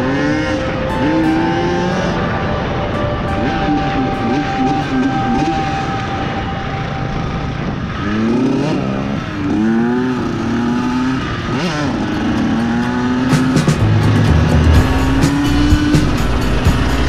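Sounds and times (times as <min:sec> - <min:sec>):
dirt bike engine revving: 0:07.8 - 0:17.0.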